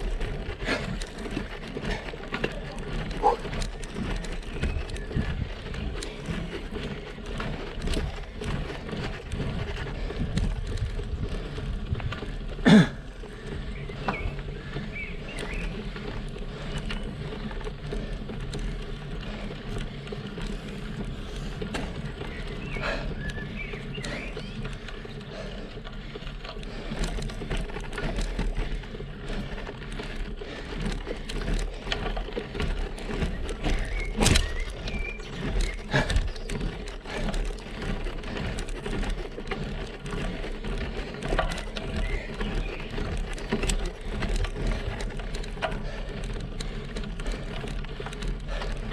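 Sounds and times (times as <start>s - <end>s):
bike rattles and clicks: 0.0s - 48.9s
bike tyre rumble on asphalt: 0.0s - 48.9s.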